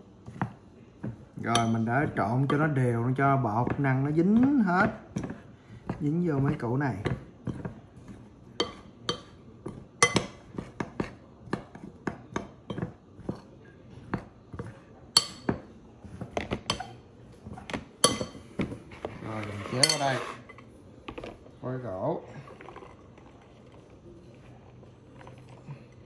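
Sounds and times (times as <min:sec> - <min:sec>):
metal spoon scraping glass bowl: 0:19.2 - 0:20.6.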